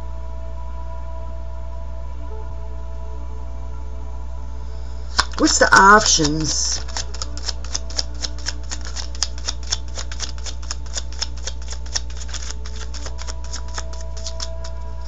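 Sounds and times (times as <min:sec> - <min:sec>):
steady low hum: 0:00.0 - 0:15.0
cards being shuffled: 0:05.1 - 0:15.0.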